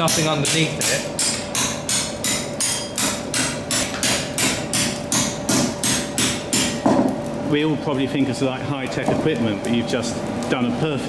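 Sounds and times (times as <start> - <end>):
mallet striking steel bar: 0.0 - 6.8.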